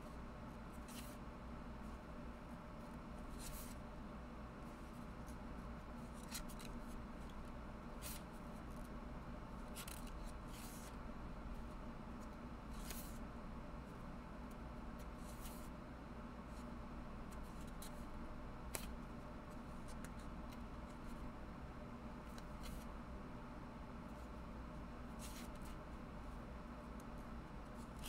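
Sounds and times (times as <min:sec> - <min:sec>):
steady low hum: 0:00.0 - 0:28.0
book pages flipping: 0:00.8 - 0:01.2, 0:02.8 - 0:03.8, 0:06.0 - 0:08.9, 0:09.7 - 0:11.0, 0:12.2 - 0:13.2, 0:18.7 - 0:19.0, 0:22.3 - 0:22.9, 0:25.2 - 0:25.8.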